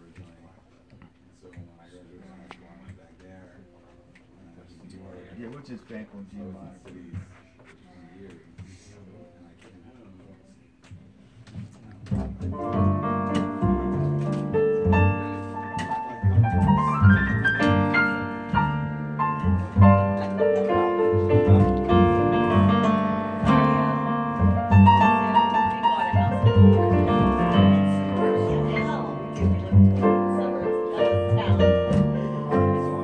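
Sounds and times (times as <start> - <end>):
jazz piano chords and runs: 12.0 - 33.0
plucked upright bass: 12.0 - 33.0.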